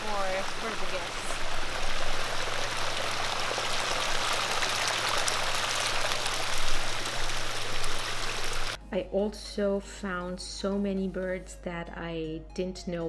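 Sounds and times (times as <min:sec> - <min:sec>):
water flowing into a pool: 0:00.0 - 0:08.8.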